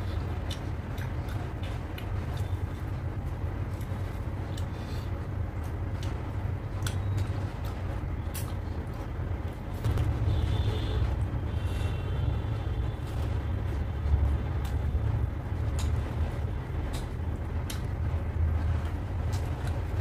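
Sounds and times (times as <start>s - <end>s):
low steady rumble: 0.0s - 20.0s
chewing clicks and lip smacks: 0.1s - 2.6s, 5.6s - 9.6s, 15.7s - 16.0s, 16.8s - 18.0s, 19.2s - 19.8s.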